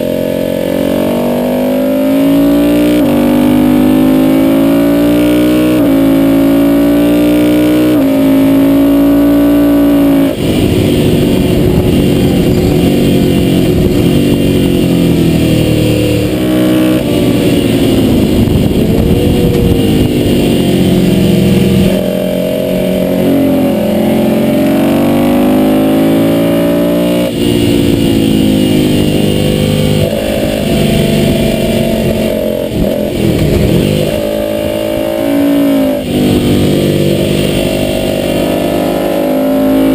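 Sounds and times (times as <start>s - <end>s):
motorcycle engine revving: 0.0s - 39.9s
wind rush on camera: 17.0s - 21.9s, 29.9s - 35.0s.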